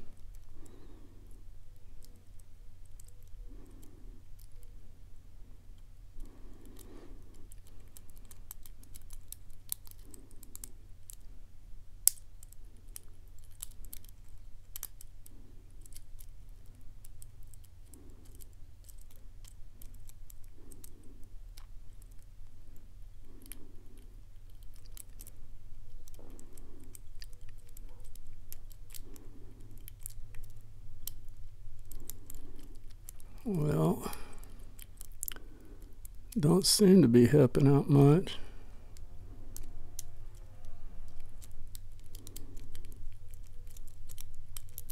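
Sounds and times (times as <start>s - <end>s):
metallic scratching of lock pick: 6.6s - 11.3s, 12.0s - 33.4s, 38.9s - 44.9s
tiny clicks of lock pins: 12.0s - 15.2s.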